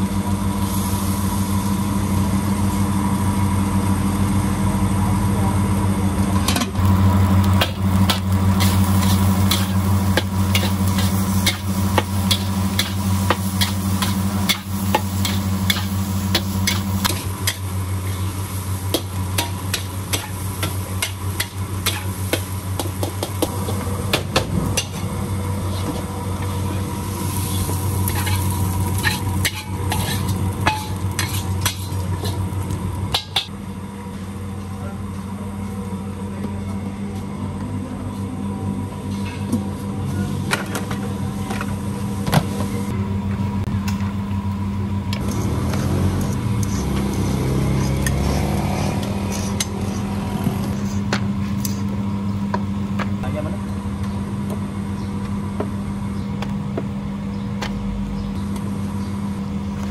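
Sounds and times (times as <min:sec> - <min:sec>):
stove humming: 0:00.0 - 0:37.0, 0:37.6 - 0:59.9
metal spatula scraping a wok: 0:27.4 - 0:32.4.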